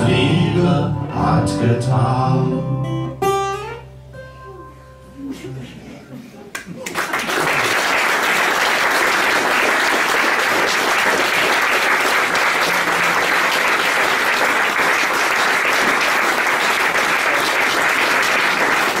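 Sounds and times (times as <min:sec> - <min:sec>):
audience applauding: 0:06.5 - 0:19.0.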